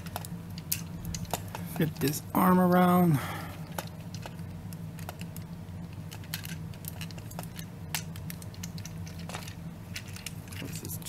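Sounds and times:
steady low hum: 0:00.0 - 0:11.0
plastic toy parts clicking: 0:03.7 - 0:10.9.

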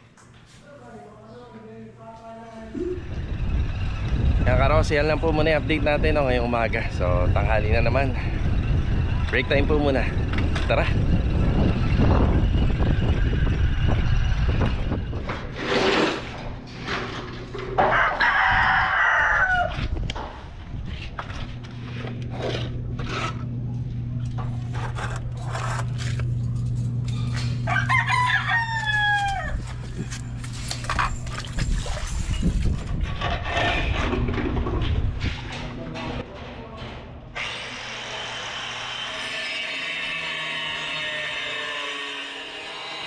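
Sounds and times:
steady low hum: 0:00.7 - 0:17.8, 0:19.8 - 0:37.4
wind rumble: 0:02.8 - 0:16.7, 0:26.2 - 0:36.3
rooster crowing: 0:17.8 - 0:19.9, 0:27.6 - 0:29.8.

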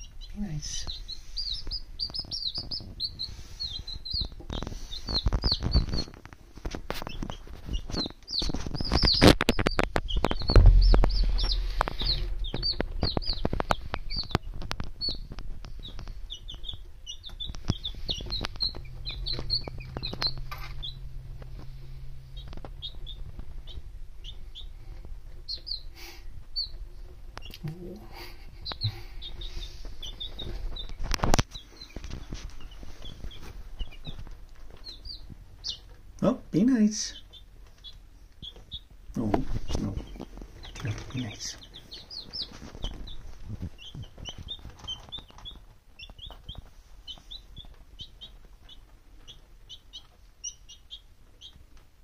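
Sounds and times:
chicks peeping: 0:00.0 - 0:52.0
loud dull thump: 0:10.2 - 0:13.3.

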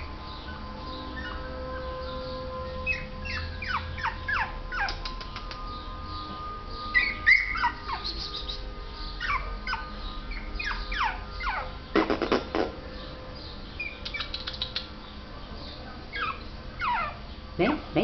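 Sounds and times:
puppy whimpering: 0:02.9 - 0:05.4, 0:07.0 - 0:08.4, 0:09.2 - 0:11.7, 0:16.1 - 0:17.2.

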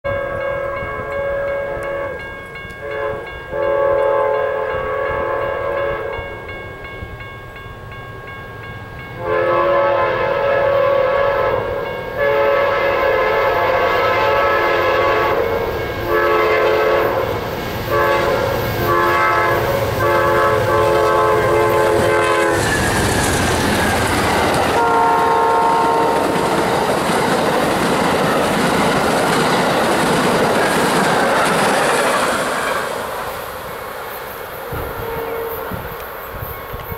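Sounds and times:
locomotive air horn blasts: 0:00.1 - 0:06.4, 0:09.2 - 0:22.9, 0:24.6 - 0:26.4, 0:34.6 - 0:36.0
locomotive engine passing: 0:08.5 - 0:36.8.

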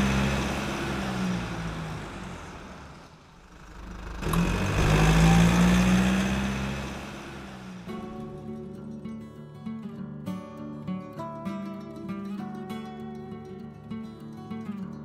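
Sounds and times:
car revving driving past: 0:00.0 - 0:08.4.

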